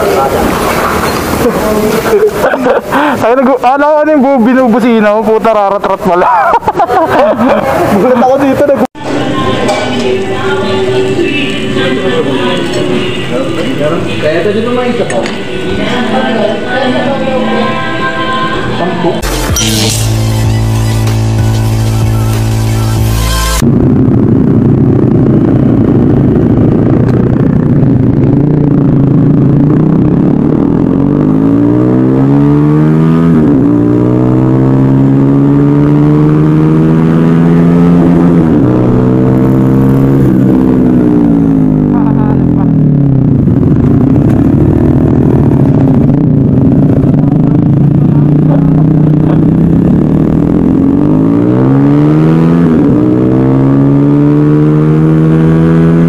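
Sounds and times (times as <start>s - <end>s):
motorcycle engine accelerating: 19.2s - 56.0s.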